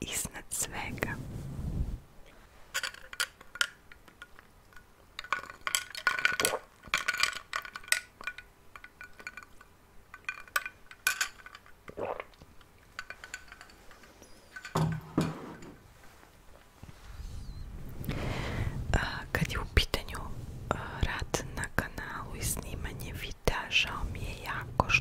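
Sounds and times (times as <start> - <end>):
tableware clinking: 13.0 - 15.8.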